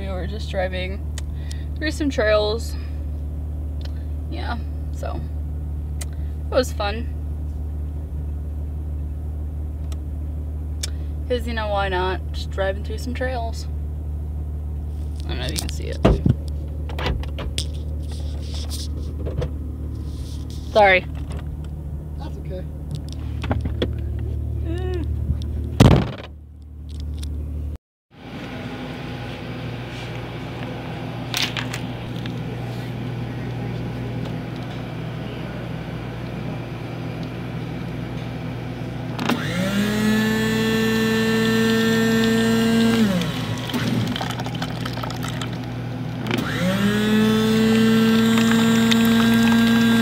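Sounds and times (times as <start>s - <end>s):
refrigerator and ventilation hum: 0.0s - 50.0s
car cabin rumble: 14.2s - 27.7s
loud thump: 25.8s - 26.3s
drink dispenser motor whine: 39.0s - 50.0s
drink pouring into paper cup: 42.9s - 45.7s, 47.9s - 50.0s.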